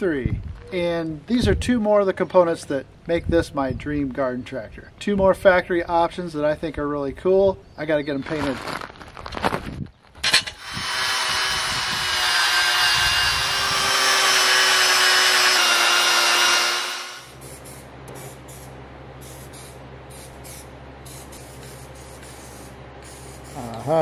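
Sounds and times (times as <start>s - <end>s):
angle grinder on metal: 10.2s - 17.4s
steady low hum: 10.2s - 24.0s
spray paint can hissing: 17.2s - 24.0s.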